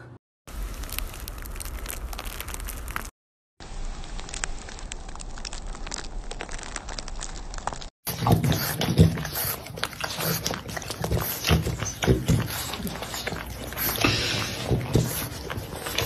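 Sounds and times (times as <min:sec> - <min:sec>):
steady hiss with crackles: 0:00.5 - 0:07.9
puppy licking and smacking: 0:08.1 - 0:16.0.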